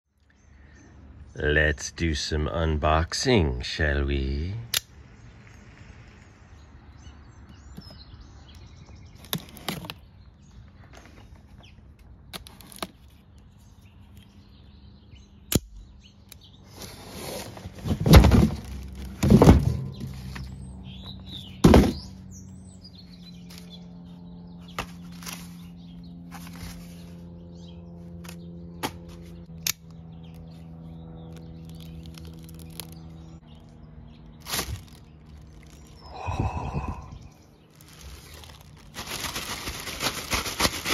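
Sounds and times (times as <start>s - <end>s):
cardboard scraping and ripping: 9.2s - 10.0s, 16.7s - 20.5s, 34.4s - 35.9s, 37.8s - 40.9s
plastic bag crinkling: 31.6s - 33.0s, 34.4s - 36.0s, 37.6s - 40.9s.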